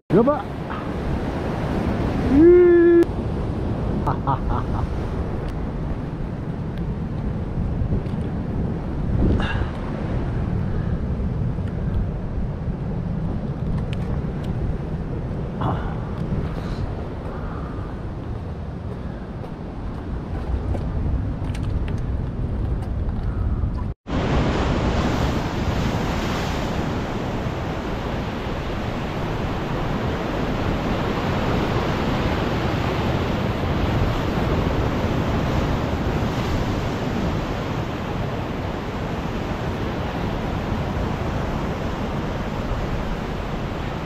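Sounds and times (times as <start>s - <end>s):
wind on microphone: 0.5s - 44.0s
surf breaking over rocks: 24.1s - 44.0s.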